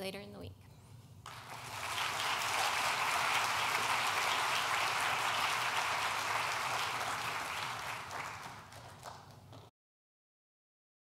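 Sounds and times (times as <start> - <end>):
audience applauding: 1.3 - 9.7.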